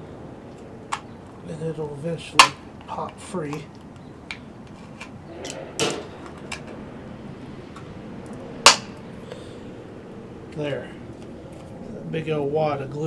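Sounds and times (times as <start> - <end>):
sharp loud plastic snap: 8.7 - 9.0.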